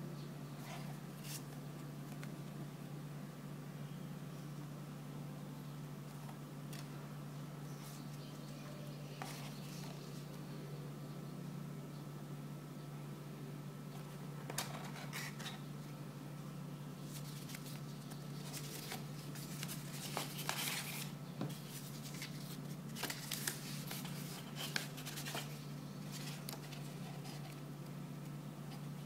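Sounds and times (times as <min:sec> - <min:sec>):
steady low hum: 0:00.0 - 0:29.0
paper rustling: 0:17.1 - 0:27.7.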